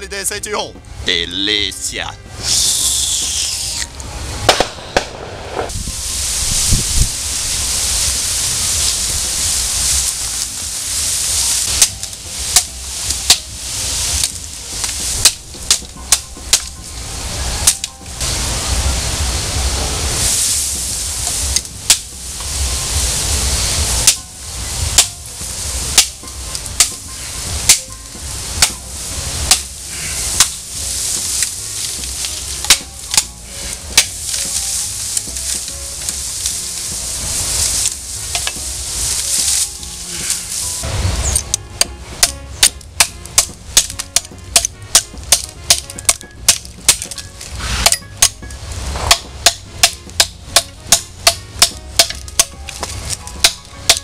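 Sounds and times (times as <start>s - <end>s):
bamboo leaves rustling: 1.1s - 54.0s
knife chopping bamboo: 42.2s - 47.2s, 49.0s - 54.0s.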